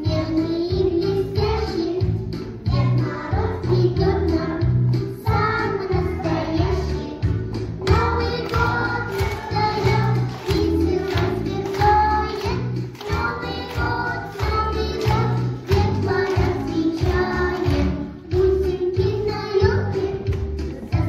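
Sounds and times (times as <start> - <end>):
children singing: 7.8 - 20.2.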